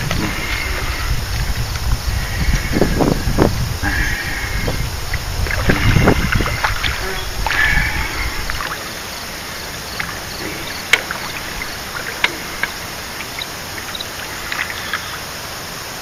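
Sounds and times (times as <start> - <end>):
steady background hiss: 0.0 - 16.0
fish thrashing and splashing: 3.8 - 15.7.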